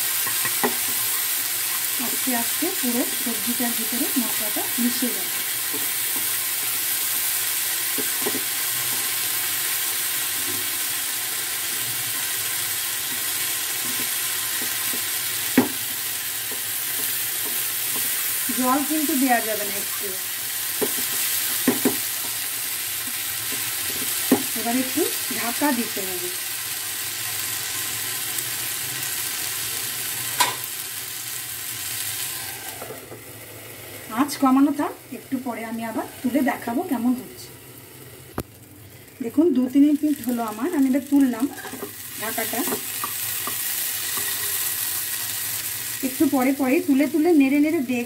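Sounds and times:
vegetables sizzling in oil: 0.0 - 48.0
spatula knocking on pan: 20.8 - 22.4.

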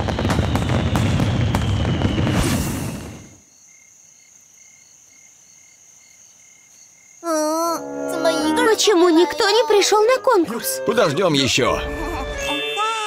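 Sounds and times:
cartoon fireworks crackling and popping: 0.0 - 3.4.

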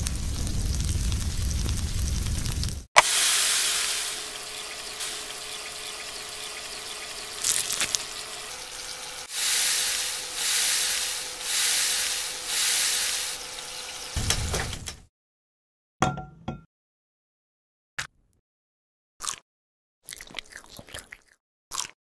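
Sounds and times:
food sizzling in a frying pan: 0.0 - 14.5.

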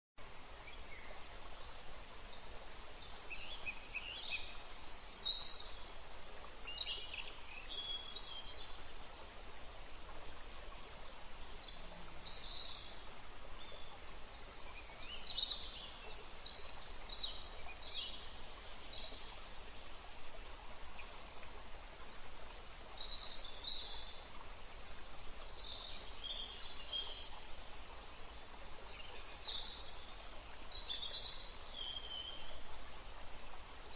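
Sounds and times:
background hiss: 0.2 - 33.9.

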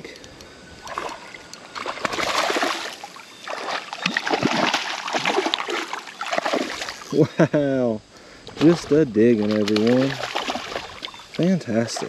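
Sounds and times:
fish splashing at water surface: 0.8 - 7.0, 9.4 - 11.2.

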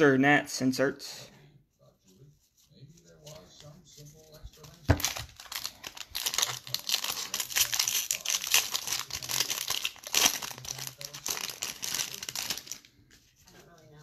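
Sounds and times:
foil wrapper tearing and crinkling: 4.6 - 12.9.

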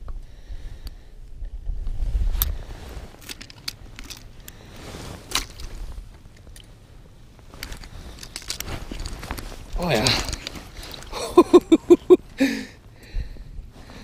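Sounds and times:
fishing gear clicking in slushy ice: 3.2 - 4.6, 5.2 - 6.7, 7.5 - 11.2.

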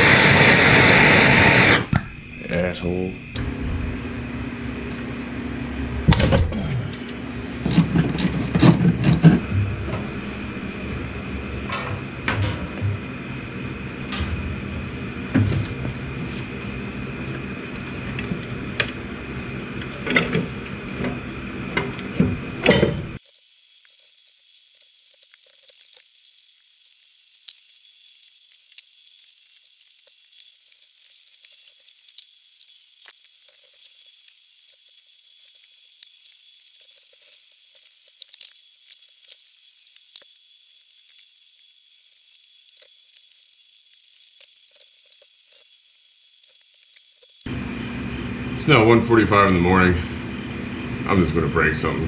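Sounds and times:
steady hum: 0.0 - 23.2, 46.4 - 52.0
ratchet clicks: 23.2 - 47.5
small ticks: 23.2 - 47.5.

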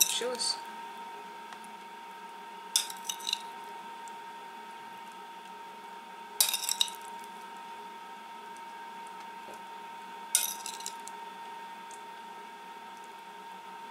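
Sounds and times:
faint steady hum: 0.0 - 13.9.

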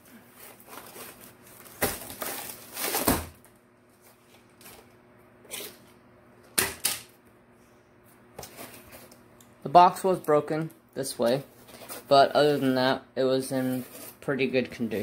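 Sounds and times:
packaging rustling: 0.2 - 4.9.

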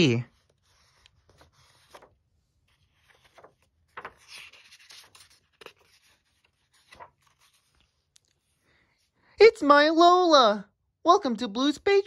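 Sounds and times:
book pages turning: 0.3 - 8.6.

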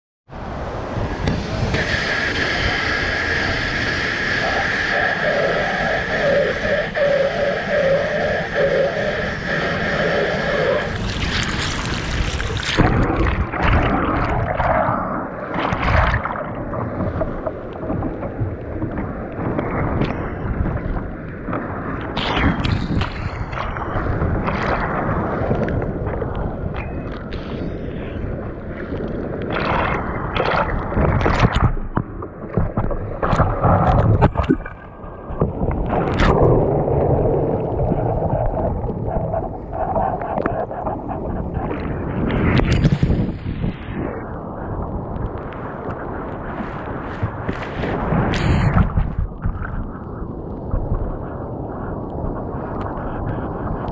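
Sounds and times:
wind on microphone: 0.3 - 53.9
surf breaking: 1.0 - 26.2
water splashing against kayak: 10.9 - 26.8, 28.8 - 51.1.

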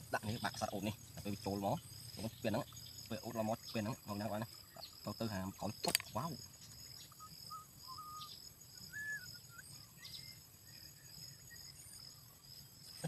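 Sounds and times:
insects buzzing: 0.0 - 13.0
whistled bird notes: 2.1 - 12.2.

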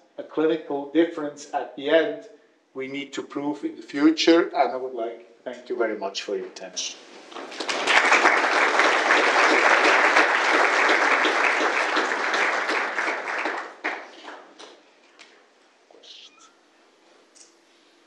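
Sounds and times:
audience applauding: 7.3 - 14.8.

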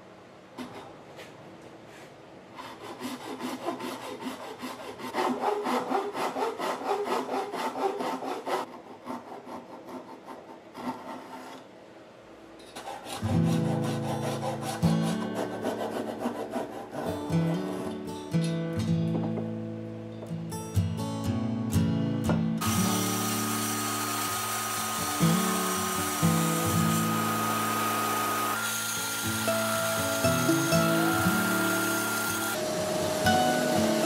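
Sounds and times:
hand saw cutting wood: 2.6 - 11.6, 12.6 - 18.0, 22.6 - 32.6
acoustic guitar music: 13.2 - 15.4, 17.1 - 23.2, 24.9 - 27.3, 29.0 - 34.0.

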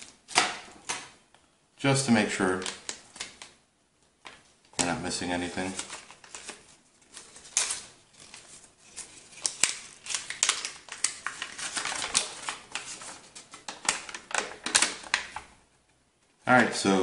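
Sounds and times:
paper rustling and crinkling: 5.2 - 15.5.

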